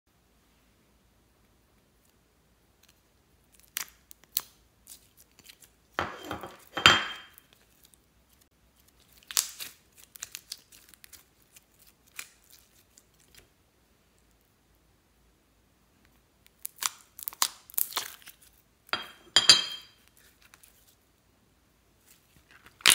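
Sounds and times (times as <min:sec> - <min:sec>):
slime crackling when stretched: 0:02.8 - 0:05.9, 0:07.4 - 0:13.5, 0:16.4 - 0:18.6, 0:22.0 - 0:22.9.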